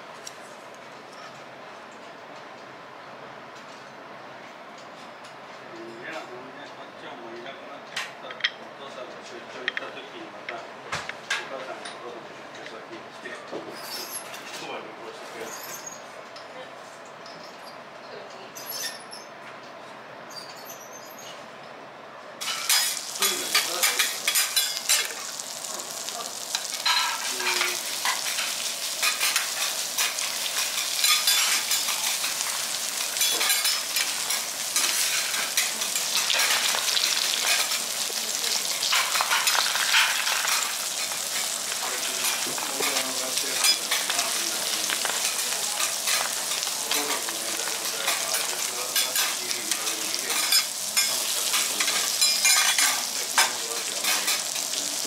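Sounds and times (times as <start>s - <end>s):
food sizzling on a griddle: 13.6s - 14.4s, 22.4s - 55.0s
spatulas scraping griddle: 13.7s - 14.5s, 26.5s - 54.8s.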